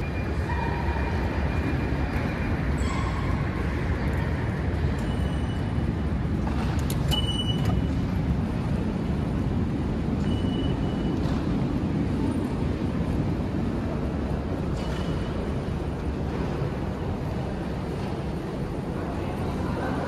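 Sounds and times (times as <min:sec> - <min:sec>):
low rumble of station concourse: 0:00.0 - 0:20.0
ticket gate electronic beeps: 0:07.0 - 0:08.1, 0:10.2 - 0:11.2.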